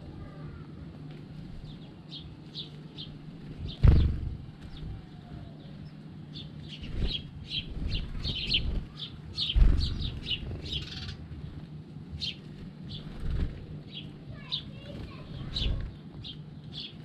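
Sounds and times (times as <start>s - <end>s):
sparrows chirping: 0.0s - 17.0s
low thumps: 3.6s - 5.0s, 9.5s - 10.7s.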